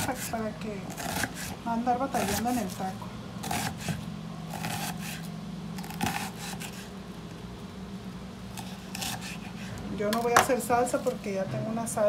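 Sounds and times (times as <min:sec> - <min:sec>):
knife slicing onion on board: 0:00.0 - 0:02.8, 0:03.4 - 0:06.9, 0:08.6 - 0:10.6.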